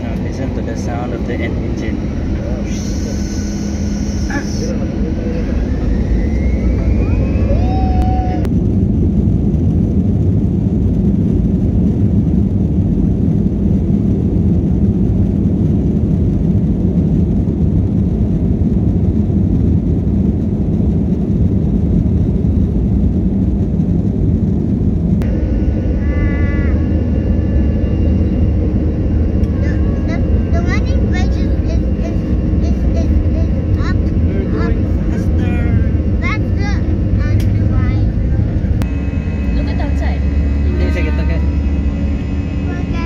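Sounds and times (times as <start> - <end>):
jet engines rumbling in cabin: 0.0 - 43.0.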